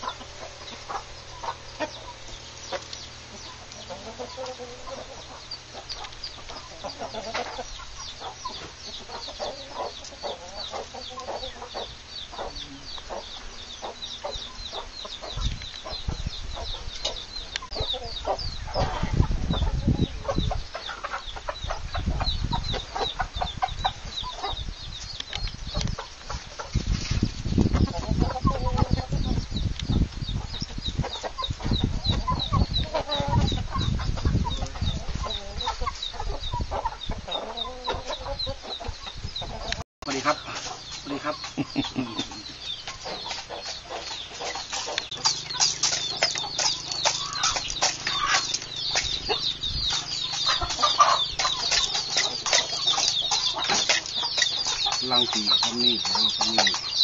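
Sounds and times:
chickens clucking: 0.0s - 57.0s
high chirps: 40.0s - 57.0s.

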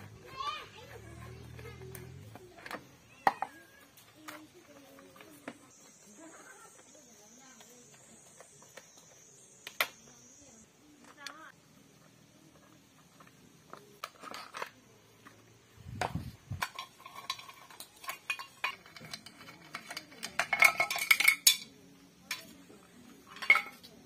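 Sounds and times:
metal tools clinking: 16.5s - 22.6s, 23.2s - 24.0s.

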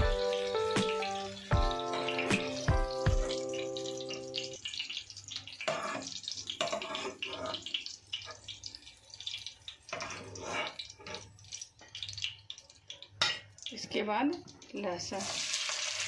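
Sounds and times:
hot oil sizzling: 0.0s - 16.0s.

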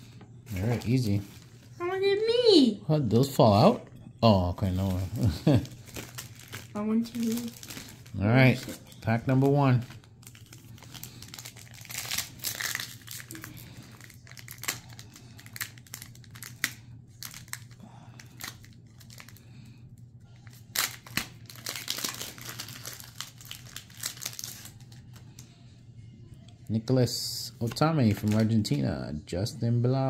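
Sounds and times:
foil wrapper tearing and crinkling: 4.6s - 19.4s, 20.4s - 25.2s.

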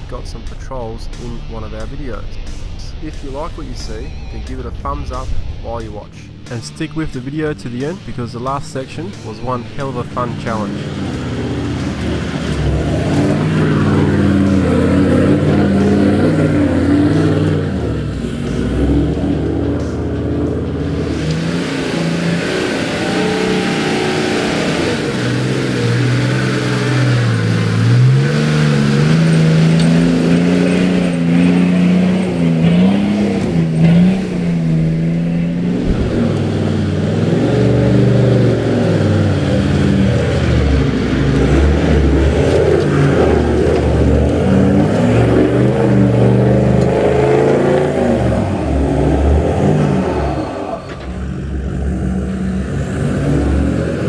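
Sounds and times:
off-road vehicle engines revving: 0.0s - 54.0s.

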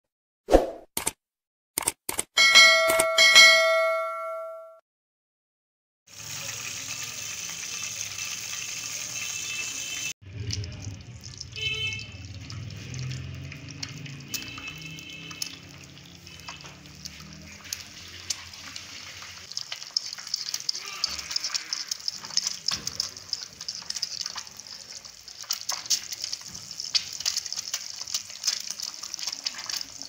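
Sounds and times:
egg sizzling in oil: 6.1s - 30.0s.

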